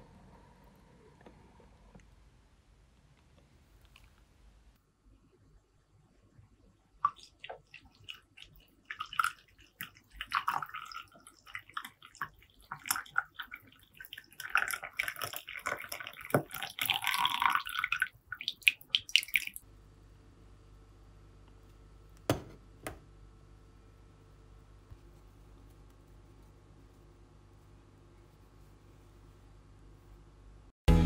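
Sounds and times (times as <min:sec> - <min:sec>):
coffee pouring into a cup: 0:07.1 - 0:19.6.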